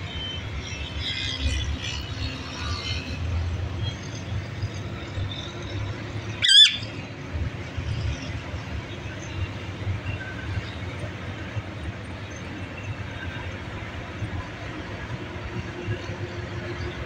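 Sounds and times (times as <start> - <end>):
parakeet screeching: 6.4 - 6.9.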